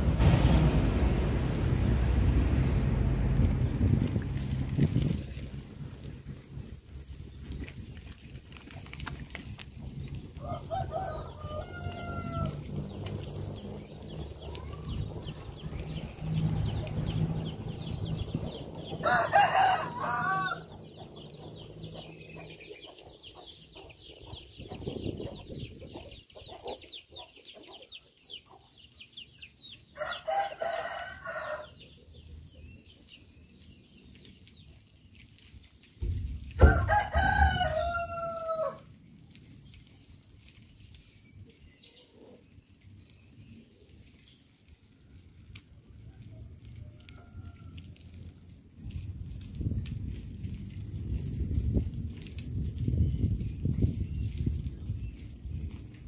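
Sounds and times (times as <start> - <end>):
low rumble: 0.0 - 22.6
roosters crowing: 10.3 - 13.0, 18.1 - 20.9, 29.9 - 32.0, 36.6 - 38.9, 46.2 - 48.2
low thump: 36.0 - 36.9.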